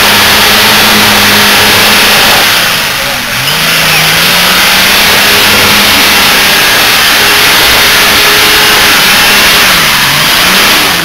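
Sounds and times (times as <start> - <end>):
off-road engine revving hard: 0.0 - 11.0.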